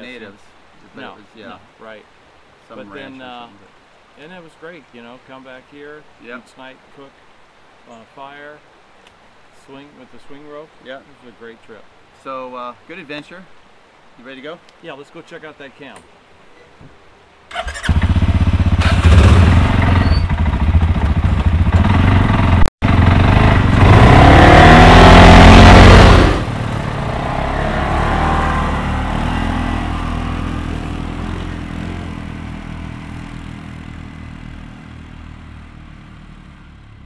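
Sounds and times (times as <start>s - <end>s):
atv engines revving: 17.8s - 37.0s.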